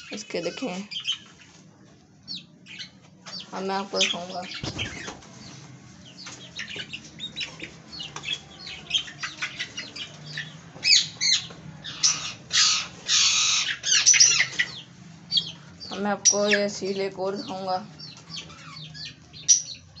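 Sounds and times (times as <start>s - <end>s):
chicks peeping: 0.0s - 20.0s
chicks squawking: 0.0s - 20.0s
wings flapping: 4.1s - 5.5s.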